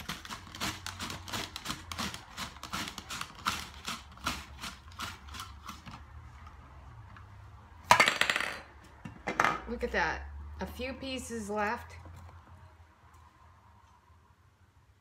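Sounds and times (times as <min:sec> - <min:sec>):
onion scraping over mandoline blades: 0:00.0 - 0:06.0.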